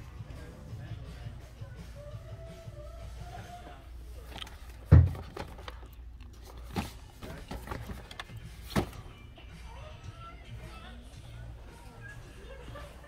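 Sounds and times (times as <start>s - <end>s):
packaging knocking and rustling: 4.3s - 5.9s, 6.5s - 9.0s.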